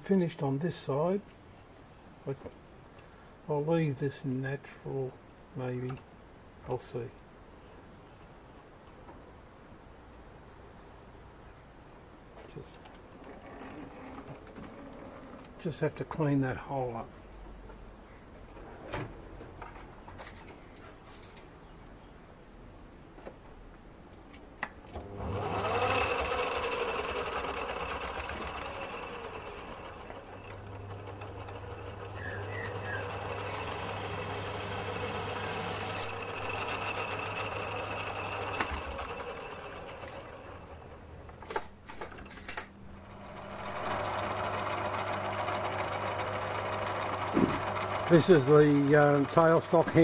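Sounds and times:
lathe motor humming and whining: 25.0 - 40.8, 43.0 - 50.0.

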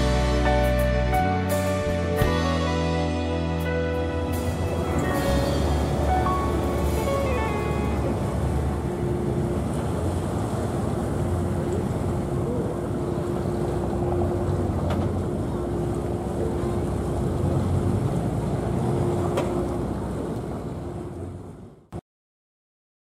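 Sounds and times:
motorboat engine droning: 0.0 - 22.0.

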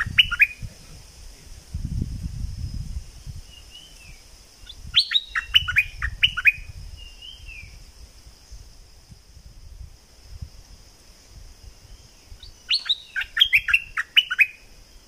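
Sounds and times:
bird song: 0.0 - 0.9, 3.2 - 8.8, 11.8 - 15.0.

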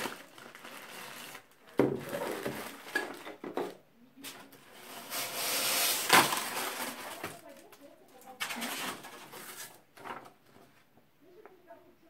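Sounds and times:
plastic bag crinkling: 0.0 - 3.4, 4.6 - 10.6
hands scraping styrofoam: 4.7 - 7.4.

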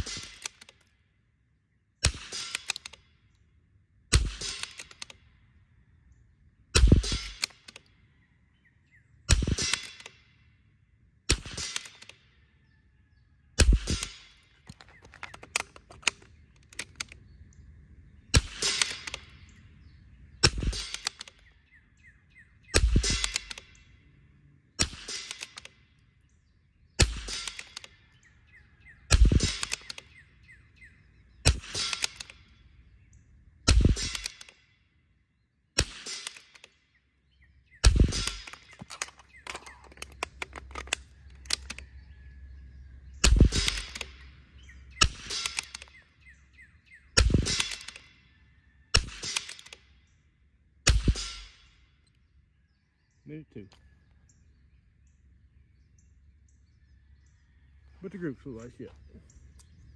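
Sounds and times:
rifle shots: 0.0 - 0.9, 2.0 - 3.0, 4.1 - 5.2, 6.8 - 7.8, 9.3 - 10.2, 11.3 - 12.2, 13.6 - 17.2, 18.3 - 19.4, 20.4 - 21.4, 22.8 - 23.8, 24.8 - 25.7, 27.0 - 28.0, 29.1 - 30.1, 31.4 - 32.5, 33.6 - 34.6, 35.8 - 36.7, 37.8 - 41.8, 43.2 - 44.3, 45.0 - 46.0, 47.2 - 48.1, 48.9 - 49.8, 50.8 - 51.8
rifle bolt clicks: 0.0 - 1.0, 2.1 - 3.4, 4.4 - 5.2, 7.0 - 7.9, 9.5 - 10.2, 11.4 - 12.2, 13.8 - 17.2, 18.4 - 19.6, 20.5 - 21.6, 23.0 - 23.8, 24.8 - 25.8, 27.3 - 28.0, 29.4 - 30.2, 31.5 - 32.6, 34.0 - 34.6, 35.8 - 36.8, 38.1 - 42.1, 43.3 - 46.1, 47.2 - 48.2, 49.0 - 49.9.

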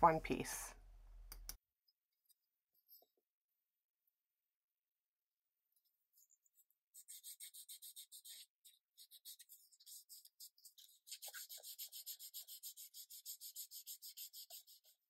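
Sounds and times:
sandpaper rasping on plywood: 7.0 - 15.0.

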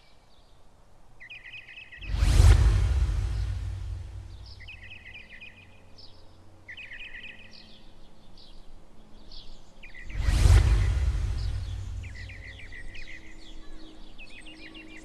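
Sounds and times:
low steady rumble: 2.0 - 5.0, 10.1 - 13.0
loud whoosh: 2.0 - 5.1, 10.0 - 13.2
birds chirping trills: 4.4 - 8.6, 11.4 - 15.0.

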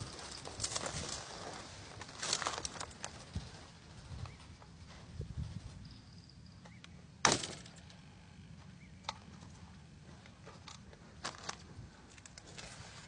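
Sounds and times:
shotgun shot: 7.2 - 7.8.

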